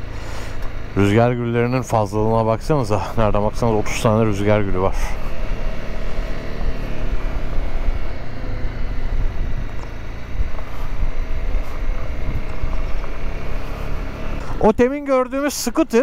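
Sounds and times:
motorcycle engine running: 0.0 - 15.5
wind rumble on microphone: 7.2 - 13.2.

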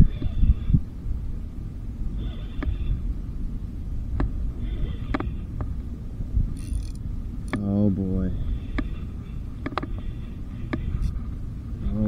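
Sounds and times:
wind buffeting microphone: 0.0 - 12.0
fishing reel clicks and buzz: 6.5 - 7.7.

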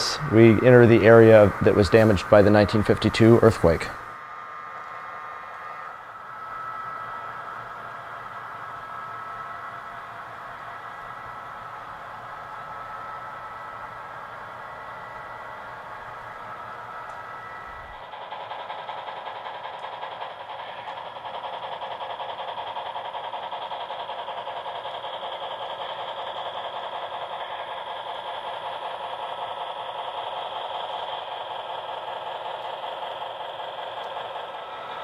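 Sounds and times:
model train wheels clattering: 0.0 - 4.0, 16.2 - 35.0.

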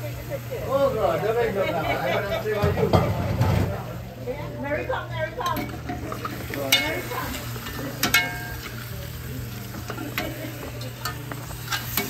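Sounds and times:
metal spoon scraping a pot: 9.6 - 12.0.

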